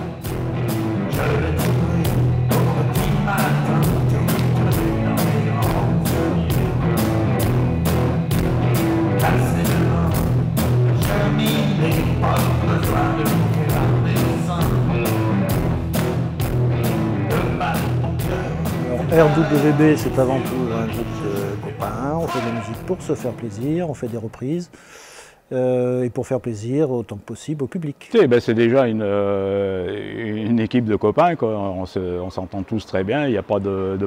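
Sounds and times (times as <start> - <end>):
pop-rock band playing: 0.0 - 24.4.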